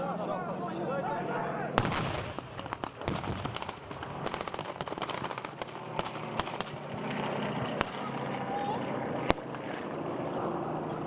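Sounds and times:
blank gunfire and pyrotechnic bangs: 0:01.8 - 0:08.2.

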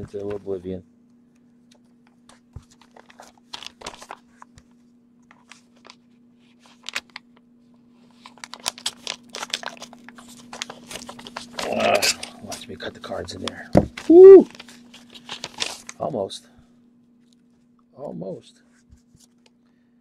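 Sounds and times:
envelope rustling: 0:02.2 - 0:07.2, 0:08.0 - 0:12.6, 0:14.0 - 0:16.0.

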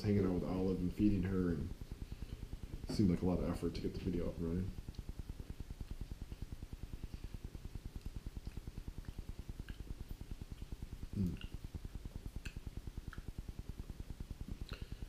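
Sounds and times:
steady low rumble: 0:00.0 - 0:15.0
faint chewing: 0:04.8 - 0:13.4, 0:14.5 - 0:15.0.

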